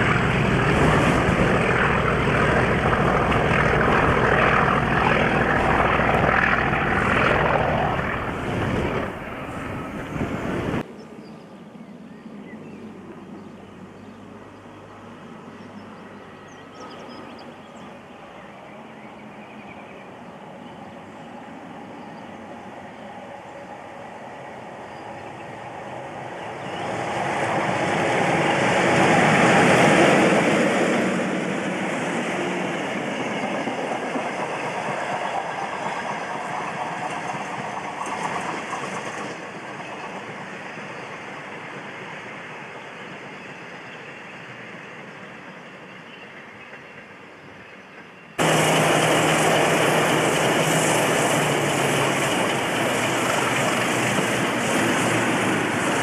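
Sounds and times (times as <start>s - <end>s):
diesel train passing: 0.0s - 10.9s, 12.9s - 56.0s
train wheels: 26.1s - 56.0s.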